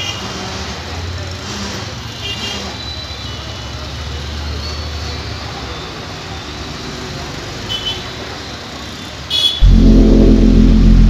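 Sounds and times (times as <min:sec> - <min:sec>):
loud low drone: 0:09.6 - 0:11.0.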